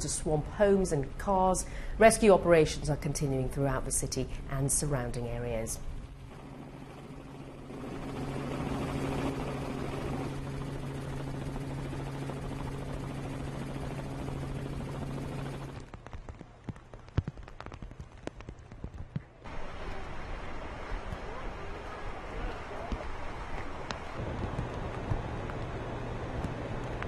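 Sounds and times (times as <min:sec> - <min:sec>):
helicopter rotor and engine drone: 0:02.7 - 0:16.4
faint clicks and knocks: 0:15.7 - 0:19.5.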